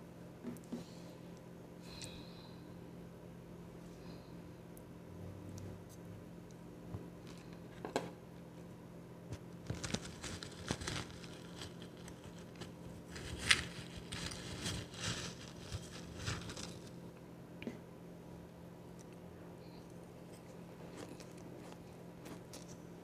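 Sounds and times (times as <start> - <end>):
spoon scraping powdery ice: 9.9 - 17.0.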